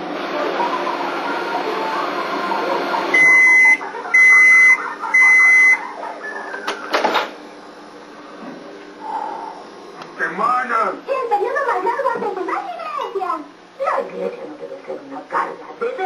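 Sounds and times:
microwave oven long beeps: 0:00.9 - 0:07.3.

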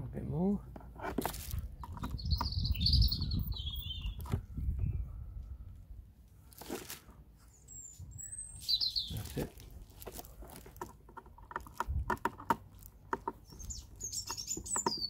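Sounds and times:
birds chirping: 0:01.5 - 0:05.9, 0:07.4 - 0:10.4, 0:12.6 - 0:15.0.

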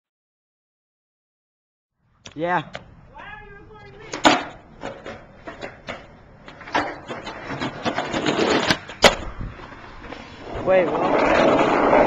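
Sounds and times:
skateboard wheels rolling on concrete: 0:02.3 - 0:12.0
skateboard clacks: 0:03.8 - 0:12.0.

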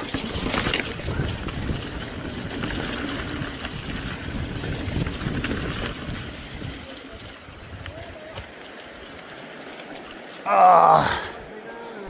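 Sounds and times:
wind buffeting the microphone: 0:00.0 - 0:08.6
bike rolling over rough ground: 0:00.0 - 0:11.0.

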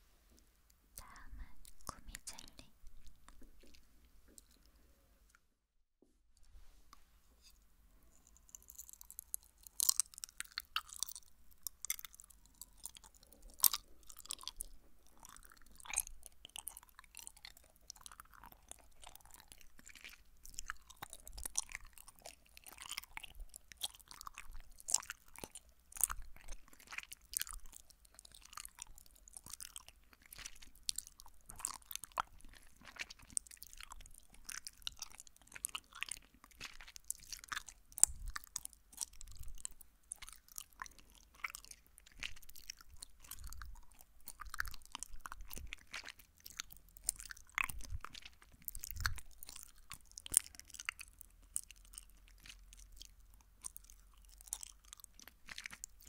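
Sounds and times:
chewing gummy candy: 0:01.0 - 0:04.8, 0:08.1 - 0:56.0.

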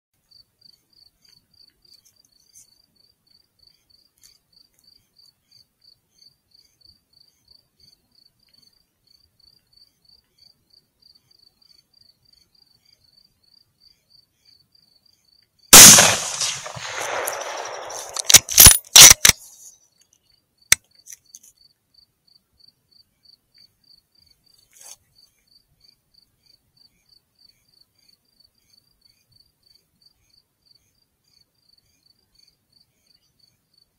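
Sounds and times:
loud sharp clicks: 0:15.8 - 0:19.4
rifle shot with echo: 0:15.8 - 0:19.4.

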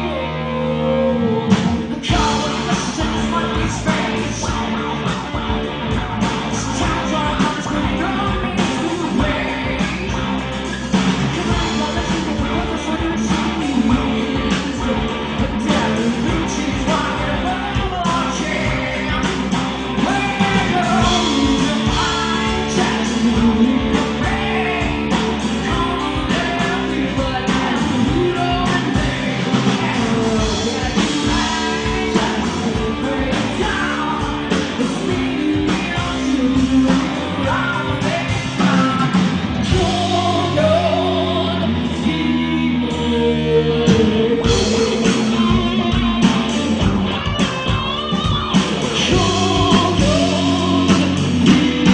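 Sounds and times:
drum kit: 0:00.0 - 0:51.9
electric bass: 0:00.0 - 0:51.9
electric guitar: 0:00.0 - 0:51.9.

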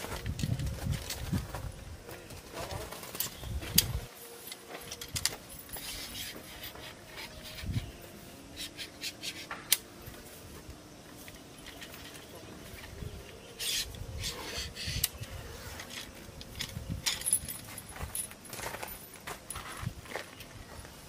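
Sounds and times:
metal tent poles sliding: 0:03.1 - 0:07.9, 0:08.5 - 0:10.3, 0:13.6 - 0:18.3.

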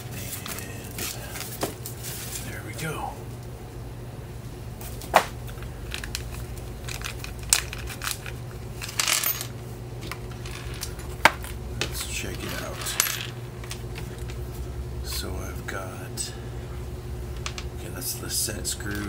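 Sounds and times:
small hard parts clicking: 0:05.9 - 0:09.2.

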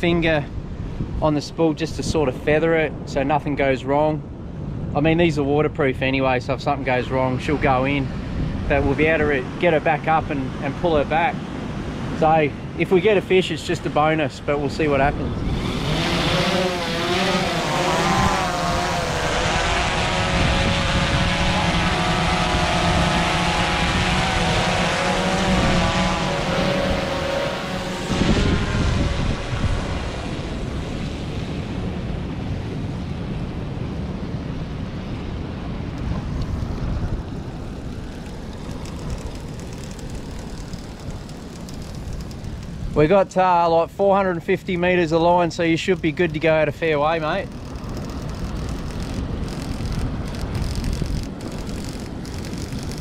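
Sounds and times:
steady rushing noise: 0:00.0 - 0:53.0
drone propellers whining: 0:15.1 - 0:32.6, 0:35.8 - 0:43.0, 0:45.6 - 0:53.0.

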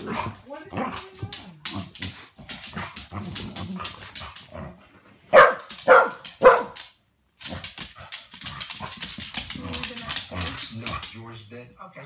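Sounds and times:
dogs scuffling and play growling: 0:00.0 - 0:11.3
dog barking loudly: 0:05.3 - 0:06.9.

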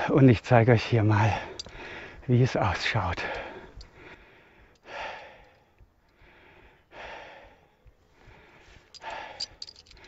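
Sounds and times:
man breathing heavily: 0:01.2 - 0:02.3, 0:03.2 - 0:10.0.

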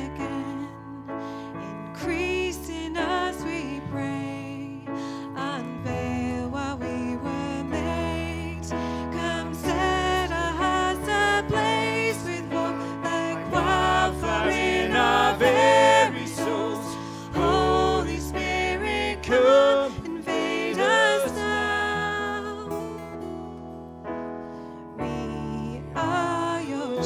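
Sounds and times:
acoustic guitar: 0:00.0 - 0:27.0
keyboard accompaniment: 0:00.0 - 0:27.0
man singing: 0:25.0 - 0:27.0.

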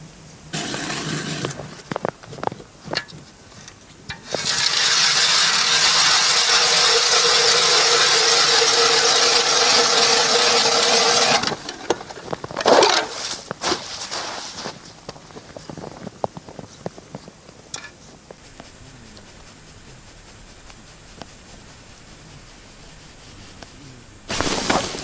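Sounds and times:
ice auger grinding: 0:00.6 - 0:01.9, 0:04.2 - 0:12.0, 0:12.6 - 0:13.3.

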